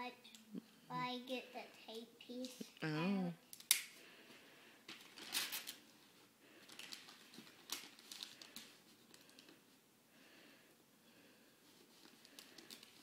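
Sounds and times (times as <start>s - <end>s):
wrapping paper rustling: 4.9s - 9.7s, 11.6s - 13.0s.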